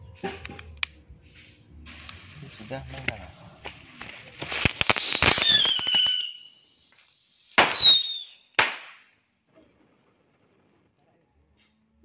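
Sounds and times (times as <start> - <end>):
firecrackers popping: 1.8 - 9.2
falling whistle: 5.0 - 6.6, 7.6 - 8.5.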